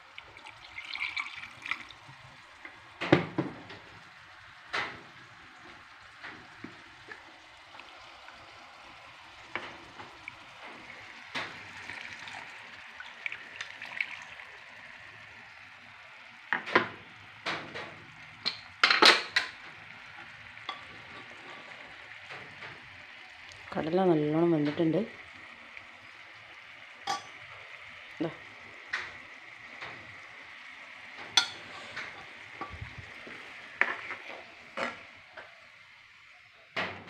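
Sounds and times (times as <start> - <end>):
masala sizzling in a frying pan: 0.0 - 37.0
spoon knocking and scraping pan: 3.0 - 3.8, 16.5 - 19.6, 20.6 - 21.8, 27.0 - 27.5, 31.2 - 35.5.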